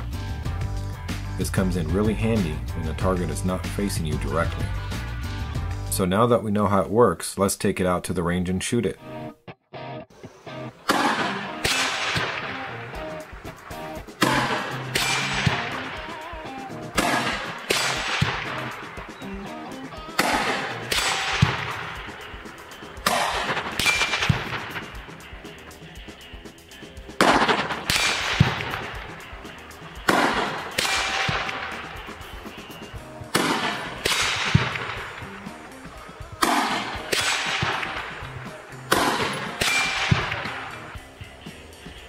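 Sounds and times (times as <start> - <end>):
rifle shots echoing: 10.8 - 26.0, 27.2 - 41.0
steel target ringing: 20.2 - 24.8.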